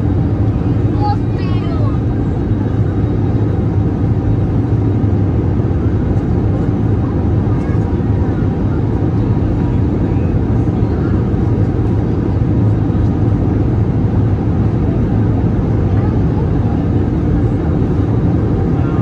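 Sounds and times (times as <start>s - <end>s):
airliner cabin engine rumble: 0.0s - 19.0s.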